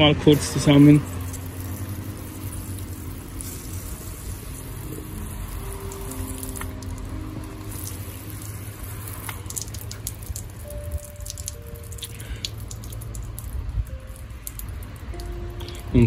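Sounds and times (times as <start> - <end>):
hose spray hissing onto gravel: 0.0 - 11.4
water splashing: 0.0 - 16.0.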